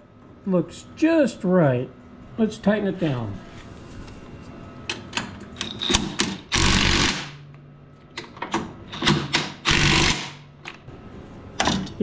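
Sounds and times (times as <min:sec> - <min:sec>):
impact driver hammering: 0:09.0 - 0:10.4.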